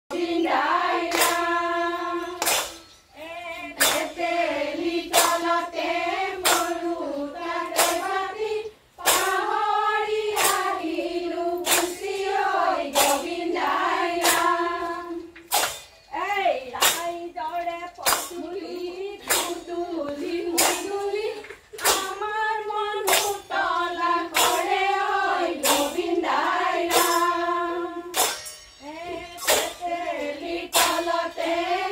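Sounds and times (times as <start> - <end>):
women singing together: 0.1 - 31.9
hand claps in unison: 1.1 - 1.6, 2.4 - 2.9, 3.8 - 4.2, 5.1 - 5.6, 6.4 - 6.8, 7.7 - 8.2, 9.0 - 9.5, 10.3 - 10.8, 11.6 - 12.2, 12.9 - 13.3, 14.2 - 14.7, 15.4 - 15.9, 16.8 - 17.1, 18.0 - 18.4, 19.2 - 19.6, 20.6 - 22.3, 23.1 - 23.5, 24.3 - 24.8, 26.9 - 27.4, 30.7 - 31.2.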